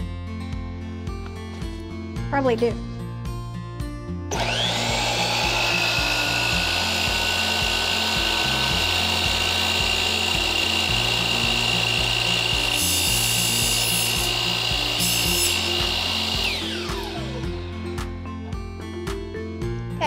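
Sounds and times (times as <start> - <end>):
saw blade cutting metal rod: 4.3 - 17.4
miter saw whining: 4.3 - 18.2.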